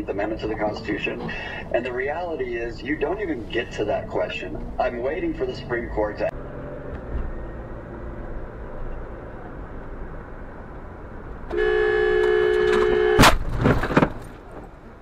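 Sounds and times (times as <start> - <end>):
car road noise: 0.0 - 15.0
two-tone car horn blaring: 11.5 - 13.3
loud collision bang: 13.1 - 14.2.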